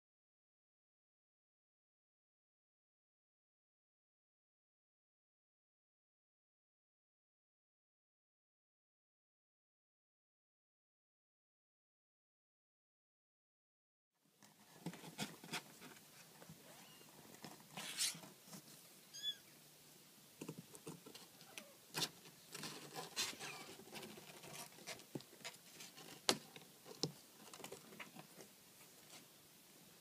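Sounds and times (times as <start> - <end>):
faint high squeak: 16.6 - 17.1, 19.1 - 19.6.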